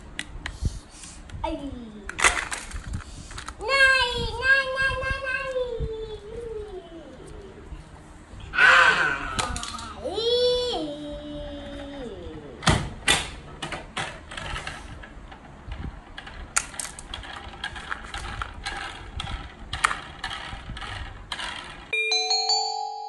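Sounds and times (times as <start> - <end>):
plastic toys clattering: 2.2 - 3.6, 9.4 - 10.0, 14.0 - 21.9.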